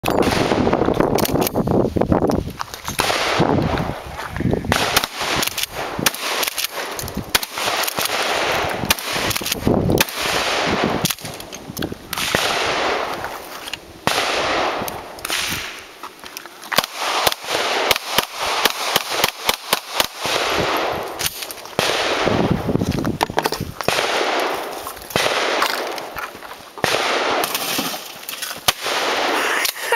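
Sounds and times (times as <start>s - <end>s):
shotgun blasts: 0.0s - 1.4s, 3.0s - 4.0s, 4.7s - 11.3s, 12.1s - 13.2s, 14.0s - 15.8s, 16.8s - 22.6s, 23.9s - 26.1s, 26.8s - 29.4s
pistol shots: 0.1s - 1.4s, 3.0s - 4.0s, 4.7s - 11.4s, 12.1s - 13.2s, 14.0s - 15.8s, 16.7s - 22.6s, 23.9s - 26.1s, 26.8s - 29.4s
gunshot echo: 0.2s - 0.9s, 3.0s - 3.5s, 4.7s - 11.2s, 12.1s - 13.2s, 14.0s - 15.8s, 21.8s - 22.6s, 23.9s - 24.6s, 25.2s - 25.9s, 26.8s - 28.0s.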